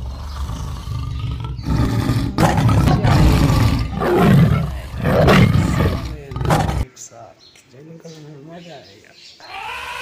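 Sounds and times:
big cat roaring: 0.0 - 6.8.

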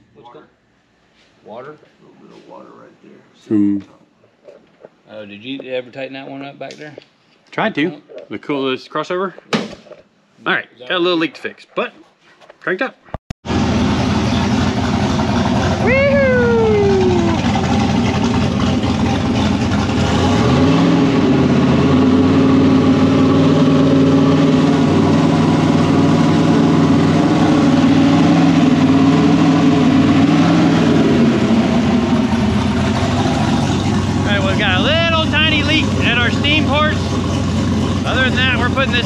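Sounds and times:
car engine idling and revving: 13.4 - 39.0.

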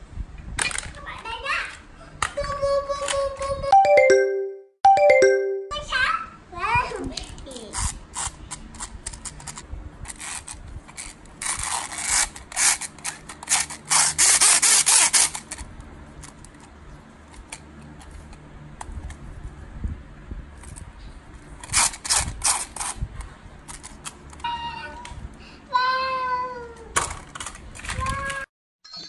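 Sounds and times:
plastic parts scraping: 7.2 - 16.7.

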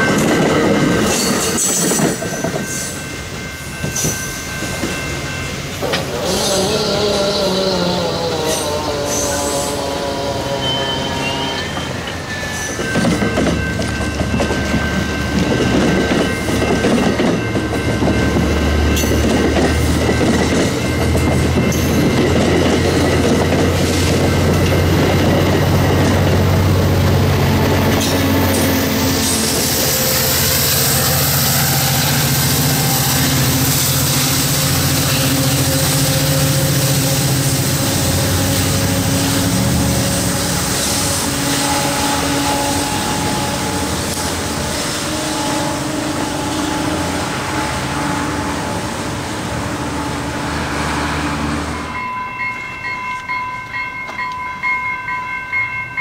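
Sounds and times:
train wheels clattering over rails: 0.0 - 5.1, 11.7 - 31.0
diesel locomotive engine drone: 0.0 - 56.0.

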